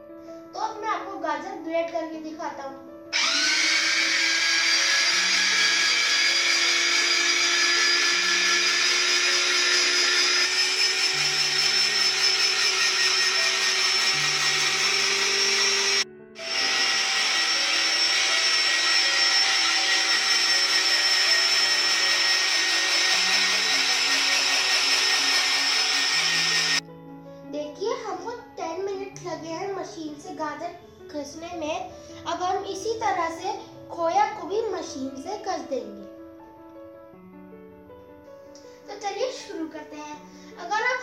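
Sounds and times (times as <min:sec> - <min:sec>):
soft background music: 0:00.0 - 0:03.2, 0:26.2 - 0:41.0
electric grater motor whining: 0:03.2 - 0:26.8.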